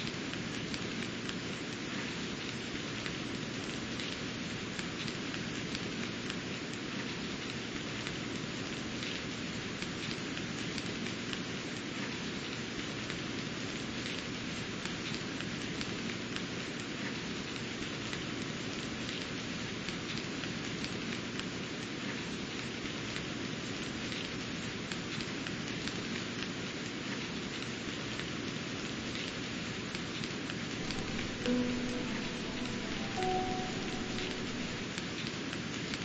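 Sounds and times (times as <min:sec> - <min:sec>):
steady rain hiss: 0:00.0 - 0:35.9
raindrops ticking: 0:30.0 - 0:35.0.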